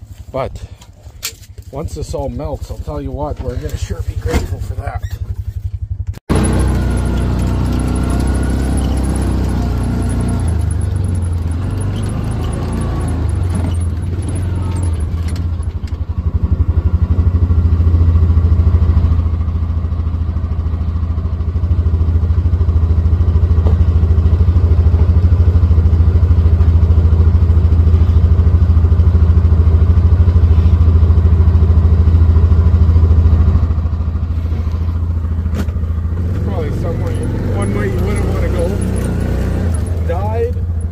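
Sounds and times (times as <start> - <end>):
utility vehicle engine running: 0.0 - 40.9
rattling: 3.4 - 16.1.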